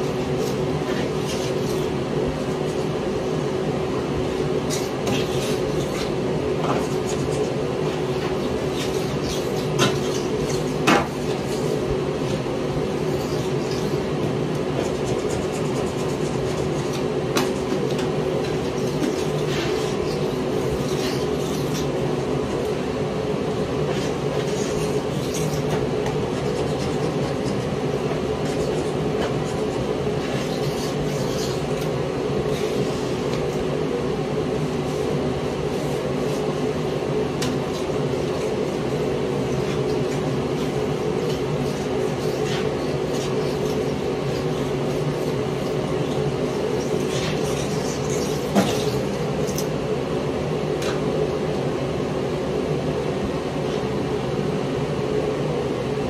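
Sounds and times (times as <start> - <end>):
steady mechanical hum: 0.0 - 56.0
hand scraper scraping coating: 23.9 - 33.4, 37.4 - 49.7.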